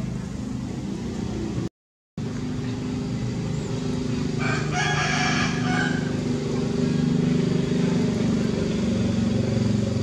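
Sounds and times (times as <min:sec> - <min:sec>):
steady low drone: 0:00.0 - 0:10.0
loud long animal call: 0:04.1 - 0:09.4.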